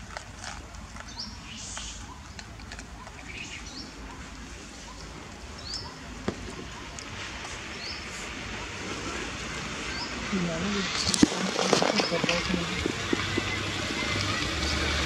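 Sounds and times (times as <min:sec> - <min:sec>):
outdoor background noise: 0:00.0 - 0:15.0
bird chirping: 0:00.9 - 0:07.0, 0:09.8 - 0:15.0.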